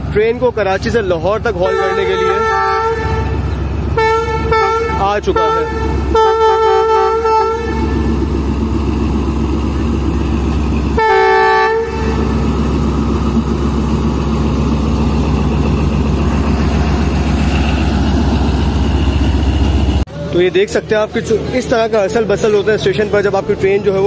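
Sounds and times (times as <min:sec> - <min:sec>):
diesel locomotive running: 0:00.0 - 0:24.0
train horn blasts: 0:01.6 - 0:08.3, 0:11.0 - 0:12.5.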